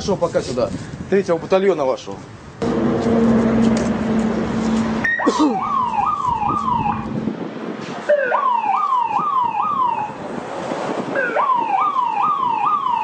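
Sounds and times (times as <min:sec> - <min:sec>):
electronic vehicle siren sweeping: 0:02.6 - 0:07.2, 0:08.1 - 0:10.2, 0:11.1 - 0:13.0.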